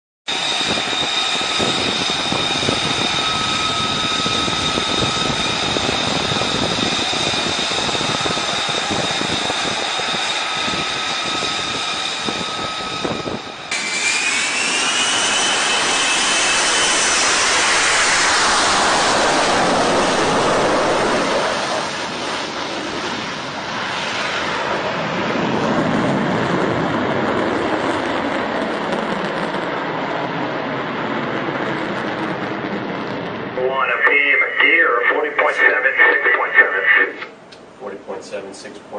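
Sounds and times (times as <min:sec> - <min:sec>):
jet rush: 0:00.3 - 0:22.8, 0:33.4 - 0:37.4
fighter jet engine roaring: 0:00.3 - 0:38.9.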